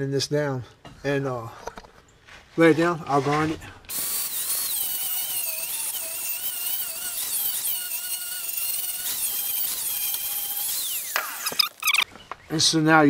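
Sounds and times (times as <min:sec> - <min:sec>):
angle grinder grinding steel: 0:02.7 - 0:12.1.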